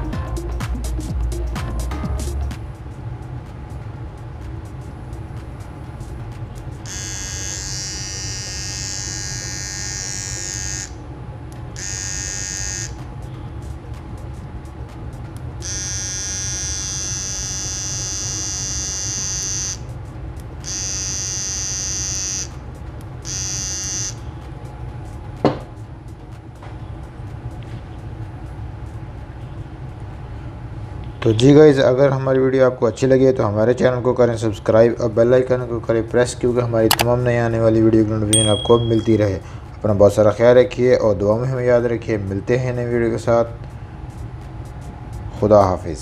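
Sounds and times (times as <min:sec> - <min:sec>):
hair trimmer buzzing: 0:06.9 - 0:11.0, 0:11.8 - 0:12.9.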